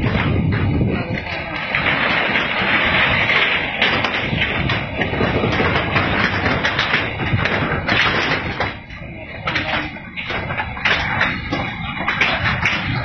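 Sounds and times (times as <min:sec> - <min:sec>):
steady rushing noise: 0:00.0 - 0:13.0.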